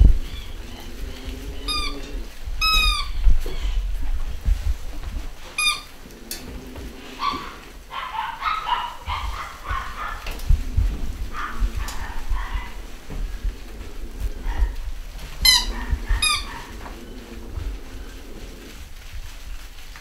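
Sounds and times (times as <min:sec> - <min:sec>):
puppies whining and grumbling: 0:00.0 - 0:19.8
bumping and scuffling: 0:00.0 - 0:20.0
puppies yelping: 0:07.0 - 0:10.4, 0:11.2 - 0:19.1.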